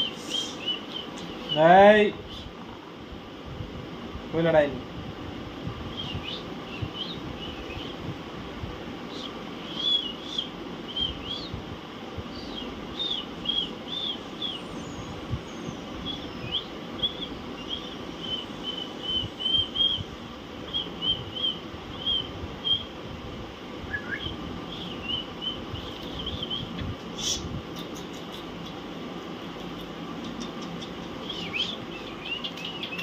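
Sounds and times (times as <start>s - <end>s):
parakeets chirping: 0.0s - 2.5s, 9.1s - 11.5s, 12.3s - 22.9s, 24.0s - 33.0s
low background hum: 0.0s - 33.0s.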